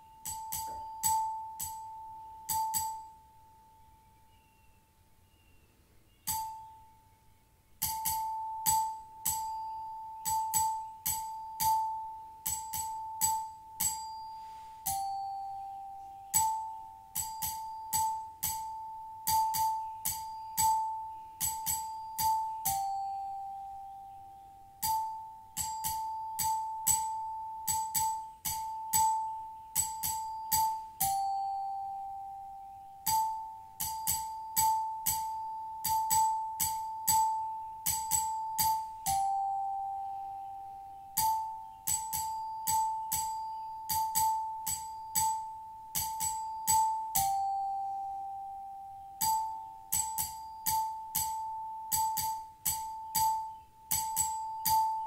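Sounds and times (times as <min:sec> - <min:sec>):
singing bowls struck: 0:00.0 - 0:03.6, 0:06.2 - 0:07.0, 0:07.8 - 0:55.0
lower singing bowl tone: 0:00.0 - 0:55.0.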